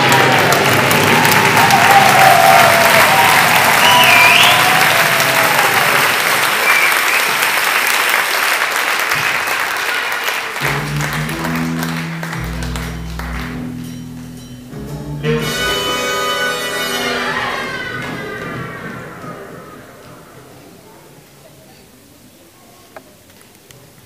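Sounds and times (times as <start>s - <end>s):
audience applauding: 0.0s - 14.0s
music over sound system: 10.6s - 17.6s.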